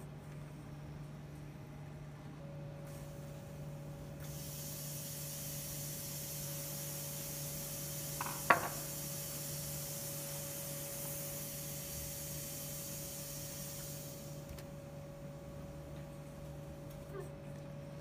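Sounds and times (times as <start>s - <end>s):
low machine hum: 0.0s - 18.0s
compressed air hissing: 2.9s - 14.6s.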